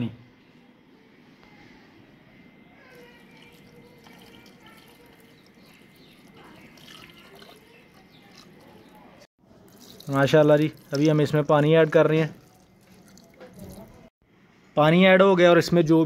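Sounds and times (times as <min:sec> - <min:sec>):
water trickling into pot: 0:02.9 - 0:14.1.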